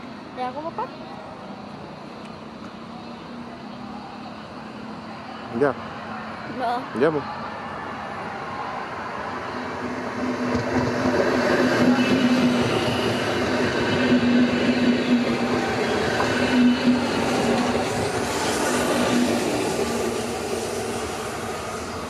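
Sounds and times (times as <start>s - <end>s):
train wheels rumbling: 7.7s - 22.0s.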